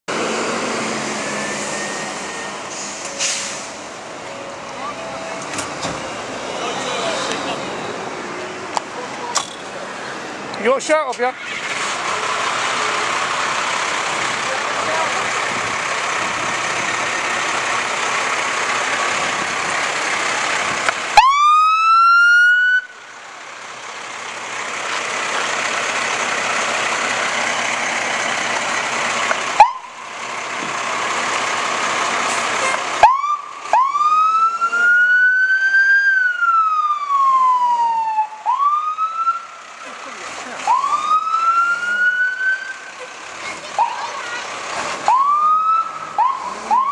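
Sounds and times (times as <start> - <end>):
fire engine siren: 0.1 - 7.4, 12.1 - 24.5, 27.3 - 31.4, 32.2 - 39.7, 40.6 - 43.1, 45.0 - 46.9
engine noise: 0.1 - 46.9.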